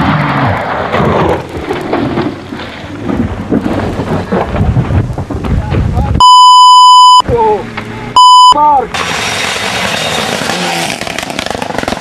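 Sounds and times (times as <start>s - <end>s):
sharp crackles: 0.0s - 7.2s.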